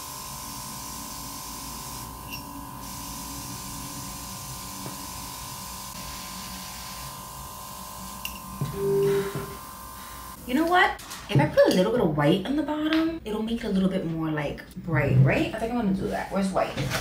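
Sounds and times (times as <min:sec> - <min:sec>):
compressor high hum: 0:00.0 - 0:10.8.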